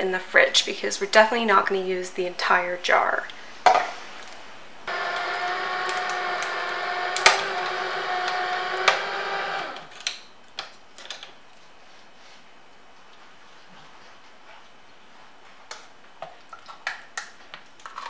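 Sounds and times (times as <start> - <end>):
electric can opener motor hum: 4.9 - 10.0.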